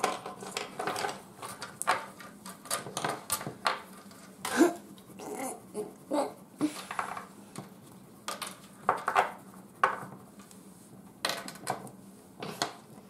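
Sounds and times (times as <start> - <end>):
crayons clacking together: 0.0 - 4.6
crayon scraping on paper: 7.6 - 10.5.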